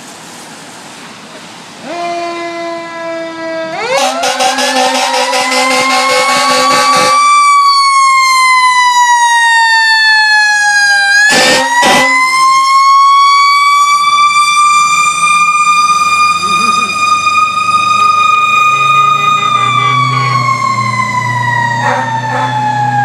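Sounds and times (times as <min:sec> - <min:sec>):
fire truck siren wailing: 0:01.8 - 0:23.0
horn blasts: 0:01.9 - 0:07.3, 0:11.3 - 0:12.4, 0:18.0 - 0:20.6, 0:21.8 - 0:22.6.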